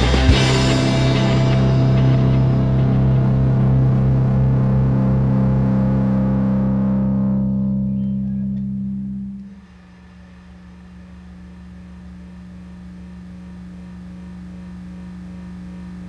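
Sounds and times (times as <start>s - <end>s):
distorted electric guitar and bass chord: 0.0s - 9.8s
steady low hum: 0.0s - 16.0s.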